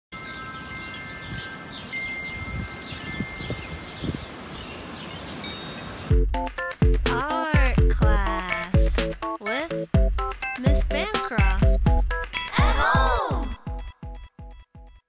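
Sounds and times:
wind chime clinking: 0:00.1 - 0:03.9, 0:05.0 - 0:06.1
low wind rumble: 0:00.4 - 0:06.1
music: 0:06.1 - 0:15.0.

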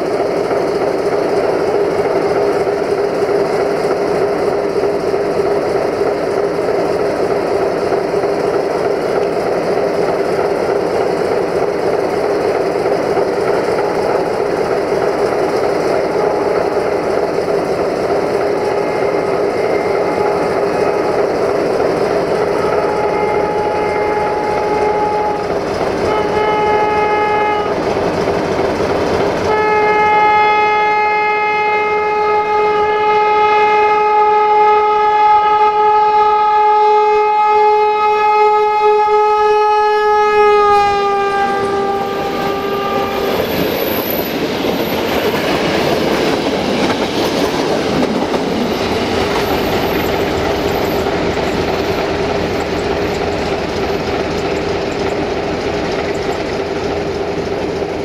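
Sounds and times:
train rumbling by: 0:00.0 - 0:58.0
locomotive horn blasts: 0:18.7 - 0:21.2, 0:22.5 - 0:27.8, 0:29.5 - 0:43.4
wheels clicking over rail joints: 0:41.4 - 0:58.0.

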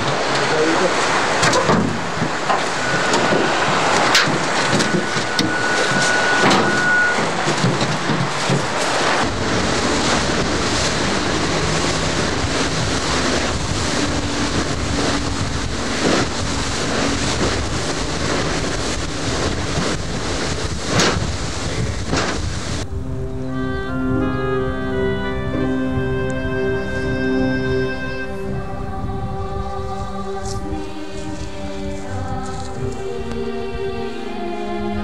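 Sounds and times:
outboard motor running: 0:00.0 - 0:22.8
deeper rumble: 0:00.0 - 0:35.0
water rushing past hull: 0:00.0 - 0:35.0
wind buffeting microphone: 0:00.0 - 0:35.0
faint high whine: 0:02.4 - 0:07.4.

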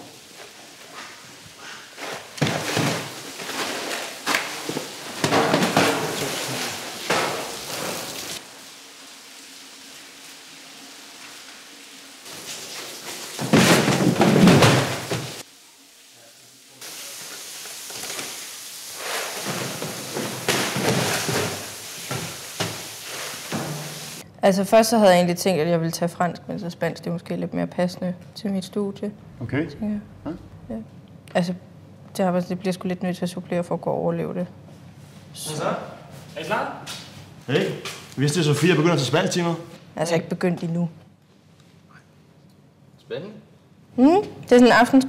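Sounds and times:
plastic crates clattering: 0:02.0 - 0:08.4, 0:12.3 - 0:15.4, 0:19.0 - 0:24.2.

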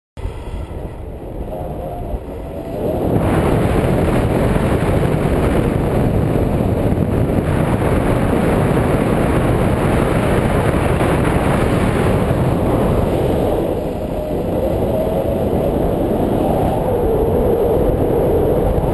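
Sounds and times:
wind rushing over microphone: 0:00.2 - 0:18.9.

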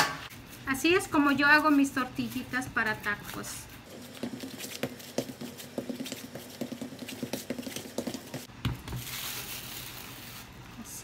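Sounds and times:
fingertips patting dough: 0:00.3 - 0:09.0.

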